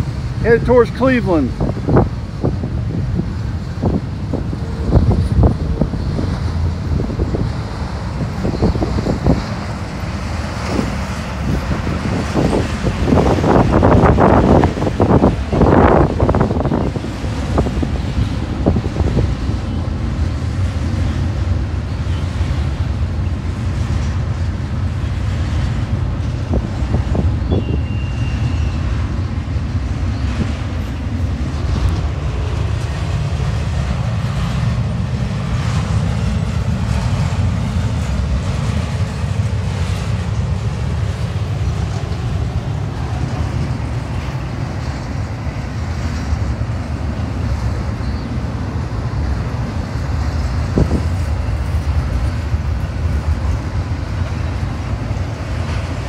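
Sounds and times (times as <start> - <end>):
freight train rumbling: 0.0 - 56.0
brief high squeal: 27.4 - 28.8.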